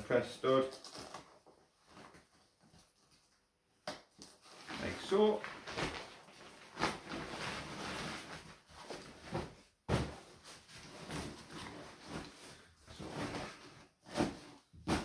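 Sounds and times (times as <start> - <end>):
fabric rucksack rustling: 4.4 - 15.0.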